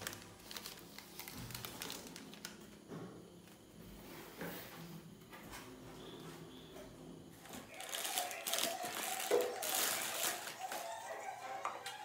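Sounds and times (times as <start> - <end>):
plastic wrapping crinkling: 0.0 - 2.6, 7.4 - 11.2.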